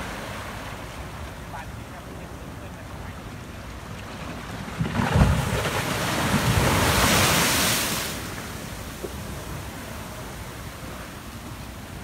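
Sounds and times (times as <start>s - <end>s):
rush of surf and spray: 0.0s - 12.0s
wave thudding against a seawall: 3.9s - 12.0s.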